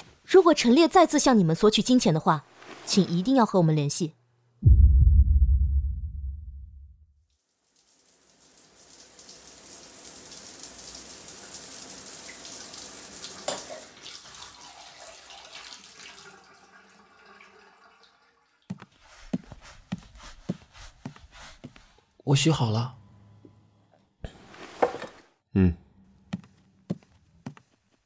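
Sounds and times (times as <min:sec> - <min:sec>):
footsteps and light knocks: 0:18.7 - 0:22.1, 0:26.3 - 0:28.0.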